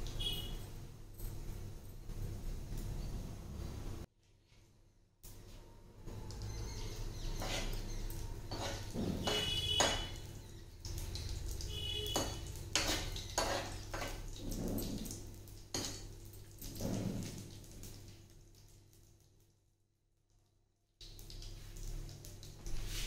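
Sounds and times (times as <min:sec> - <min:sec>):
spices sizzling in hot oil: 0:06.4 - 0:18.5
metal spoon scraping iron pan: 0:07.1 - 0:10.2, 0:12.2 - 0:15.1.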